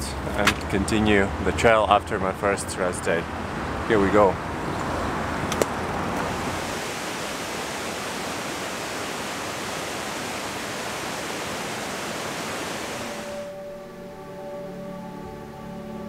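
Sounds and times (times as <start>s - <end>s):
stream rushing over rocks: 6.1s - 13.5s.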